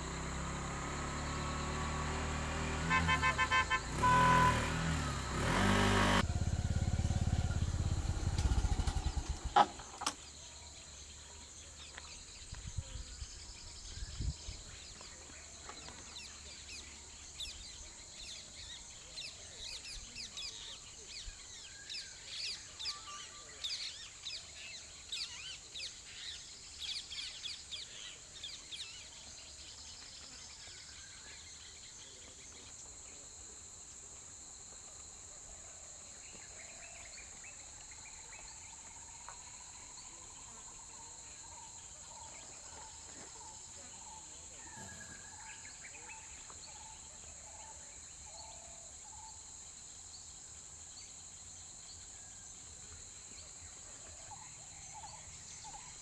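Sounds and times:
vehicles passing: 0:00.0 - 0:09.6
insect drone: 0:00.0 - 0:13.9.

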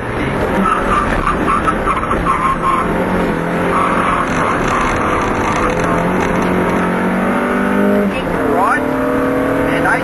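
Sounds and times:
car engine under load: 0:00.0 - 0:10.0
road and gravel noise: 0:00.0 - 0:10.0
high-pitched squealing tone: 0:00.4 - 0:06.7.

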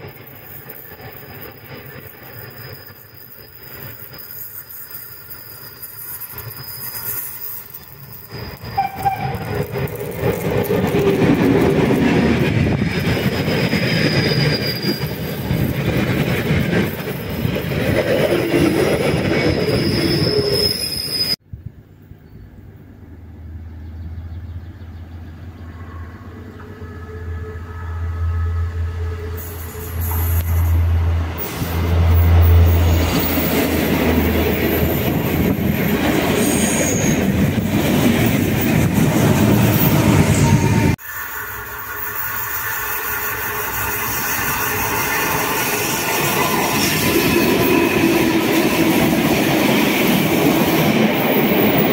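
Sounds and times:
wheel squeal: 0:00.0 - 0:21.4, 0:29.2 - 0:49.1
train rolling past: 0:00.0 - 0:51.9.

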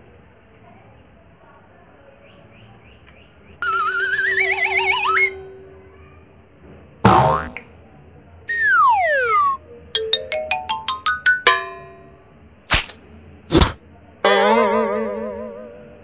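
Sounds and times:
falling whistle: 0:03.6 - 0:05.3, 0:08.5 - 0:09.6
xylophone notes climbing: 0:03.6 - 0:05.4, 0:08.5 - 0:12.0
warbling boing: 0:07.0 - 0:07.7, 0:08.5 - 0:09.6, 0:14.2 - 0:16.0.

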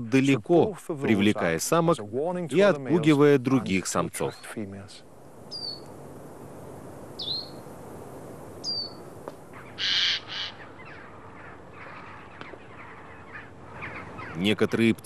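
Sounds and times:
rasping bird calls: 0:05.5 - 0:05.9, 0:07.2 - 0:07.7, 0:08.6 - 0:14.7.

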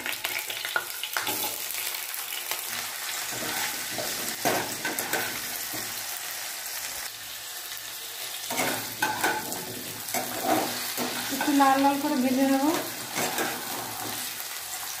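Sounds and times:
potatoes sizzling in oil: 0:00.0 - 0:15.0
spatula scraping pan: 0:03.2 - 0:06.0, 0:08.5 - 0:14.5.

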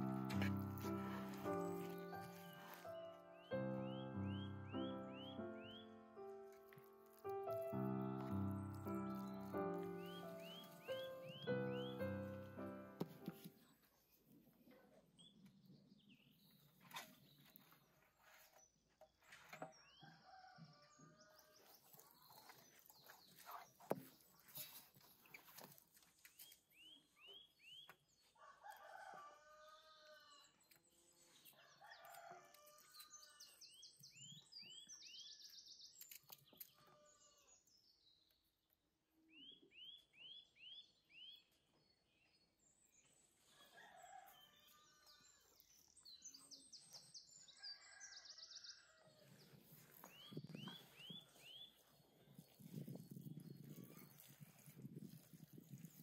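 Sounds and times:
small birds chirping: 0:00.0 - 0:14.3, 0:21.2 - 0:28.1, 0:39.2 - 0:56.0
faint rooster crowing: 0:20.0 - 0:21.7, 0:28.4 - 0:30.6, 0:31.5 - 0:33.6, 0:43.4 - 0:45.6, 0:47.4 - 0:50.2.

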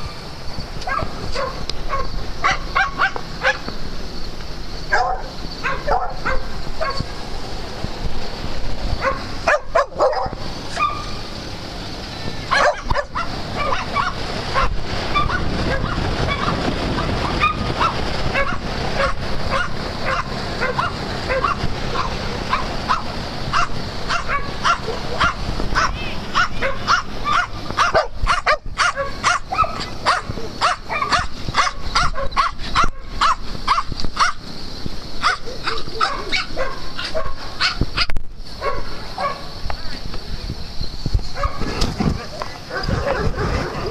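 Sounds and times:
dogs barking and yipping: 0:00.8 - 0:03.8, 0:04.8 - 0:07.2, 0:08.9 - 0:11.3, 0:12.2 - 0:34.5, 0:35.1 - 0:39.6, 0:41.2 - 0:43.9
dogs whimpering: 0:41.4 - 0:43.9.

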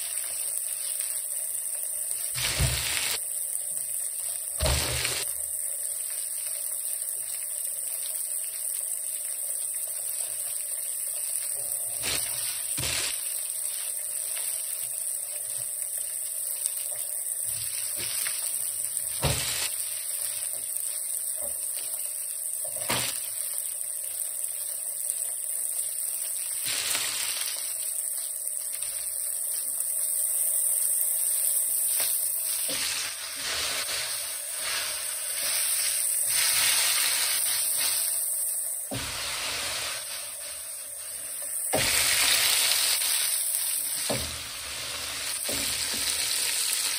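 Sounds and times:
fish frying in oil: 0:00.0 - 0:46.9.

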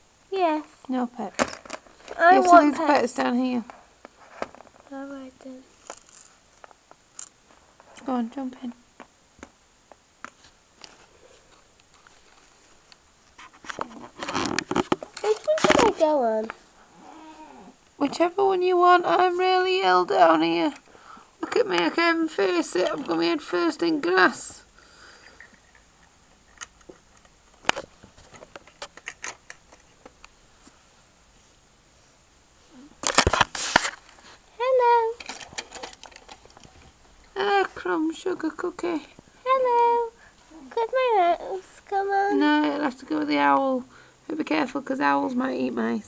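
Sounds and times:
camera handling rustling and knocking: 0:13.4 - 0:16.0, 0:26.5 - 0:30.2, 0:33.0 - 0:34.2
plastic toys clicking: 0:35.2 - 0:36.7.

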